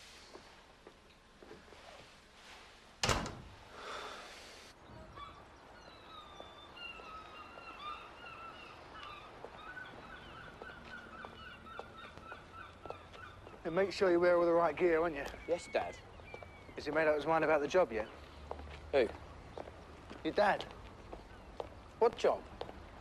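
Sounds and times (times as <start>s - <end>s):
gulls calling: 4.8s - 18.4s.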